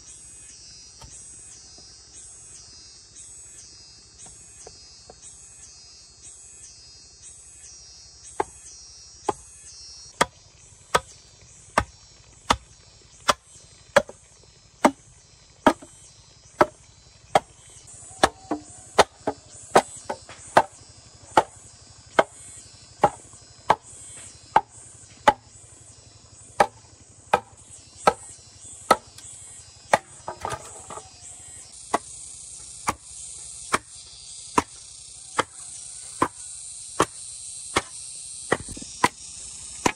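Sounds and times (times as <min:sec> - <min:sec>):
insects buzzing: 0:00.0 - 0:39.9
hand tool chopping bamboo: 0:10.2 - 0:14.2, 0:14.8 - 0:15.9, 0:16.6 - 0:22.4, 0:23.0 - 0:25.5, 0:26.6 - 0:29.3, 0:29.9 - 0:31.2, 0:31.9 - 0:36.4, 0:37.0 - 0:39.2.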